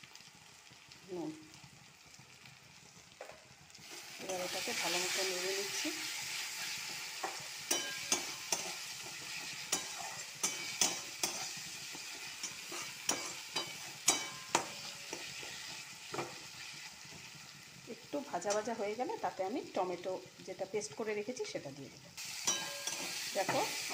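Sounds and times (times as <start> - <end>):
onions sizzling in a pan: 0.0 - 23.9
metal spatula scraping a pan: 3.9 - 17.4, 22.2 - 23.9.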